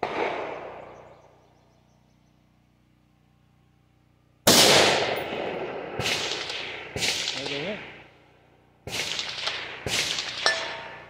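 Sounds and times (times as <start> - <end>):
sharp gunshot reports: 0.0 - 1.0, 4.5 - 8.0, 8.9 - 11.0
rifle shot with echo: 0.0 - 1.1, 4.5 - 8.1, 8.8 - 11.0.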